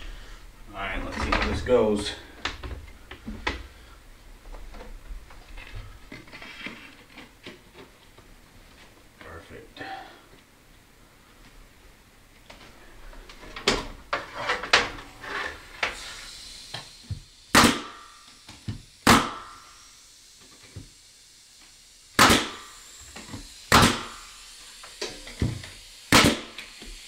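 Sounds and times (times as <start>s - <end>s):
pneumatic nail gun shots: 15.8s - 27.0s.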